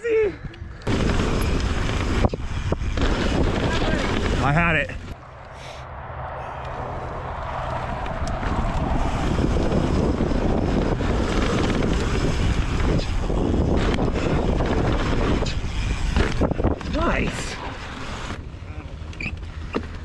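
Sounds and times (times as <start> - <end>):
bike trail noise: 0.0 - 20.0
wind on microphone: 0.3 - 17.6
sharp clicks from bike: 10.7 - 17.0.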